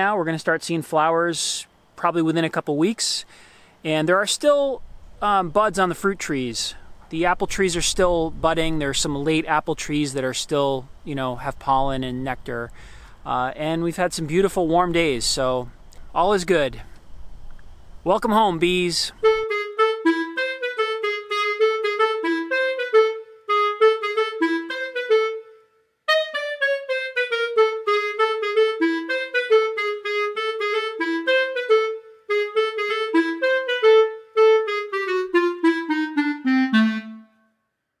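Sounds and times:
wind instrument melody: 18.1s - 37.6s.

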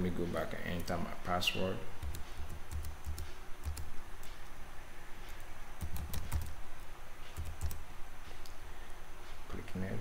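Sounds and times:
computer keyboard typing: 2.0s - 4.3s, 5.3s - 6.6s, 7.3s - 7.8s.

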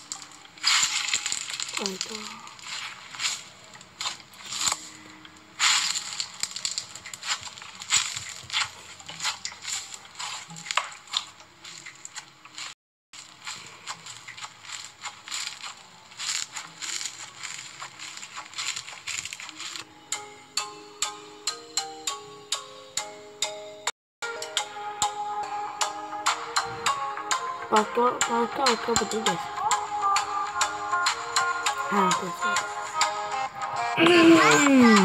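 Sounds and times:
slime crackling and popping: 0.0s - 19.8s.

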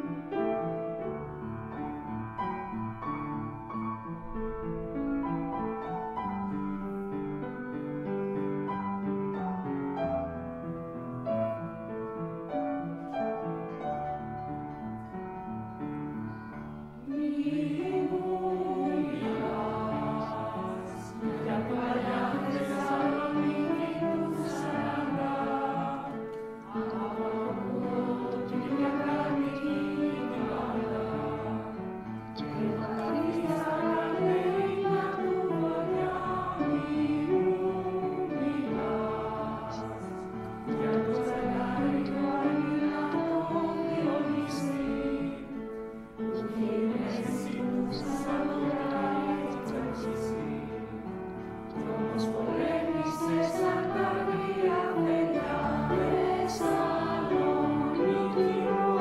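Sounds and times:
choir singing: 16.6s - 59.0s.

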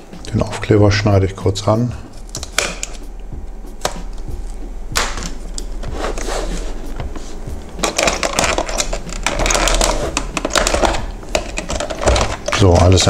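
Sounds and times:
plastic clicks snaps and scraping: 2.2s - 3.0s, 7.8s - 13.0s.

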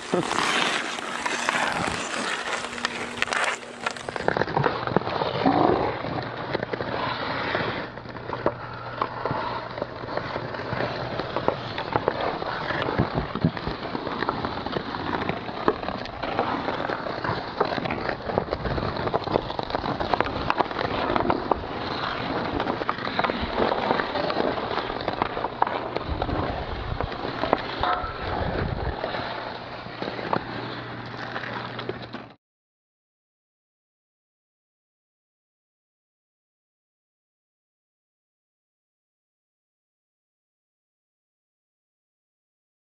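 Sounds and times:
hockey sticks hitting puck: 0.0s - 32.4s
ice skates scraping on ice: 0.0s - 32.4s.

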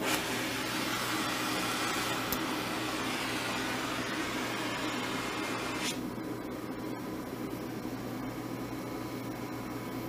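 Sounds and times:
gas torch hissing: 0.0s - 6.0s.

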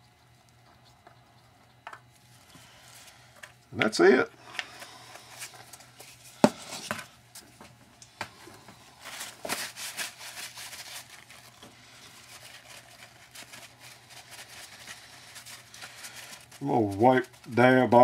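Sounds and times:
paper towel rubbing: 9.0s - 18.0s.

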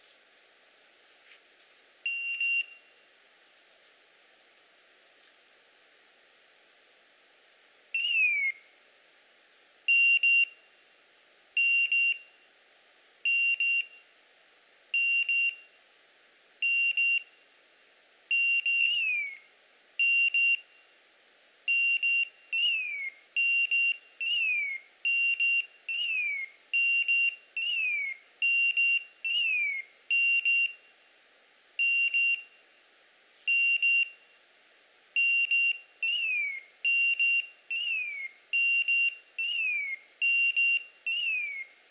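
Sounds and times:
falling chirps: 21.7s - 30.9s, 35.2s - 41.8s.

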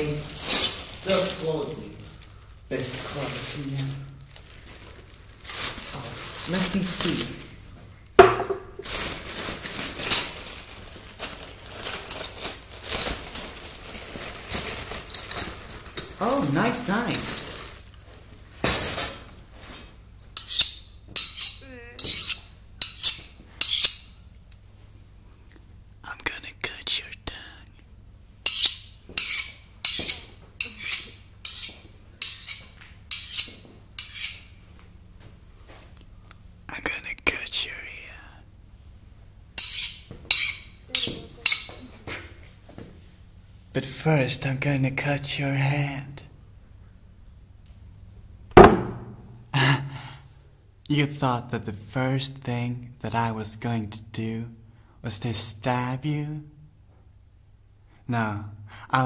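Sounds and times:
tools scraping and rustling: 0.0s - 2.2s, 8.2s - 24.2s, 28.4s - 34.6s, 39.6s - 41.9s
metal blade scraping metal: 20.4s - 24.1s, 28.4s - 34.5s, 39.6s - 41.7s.

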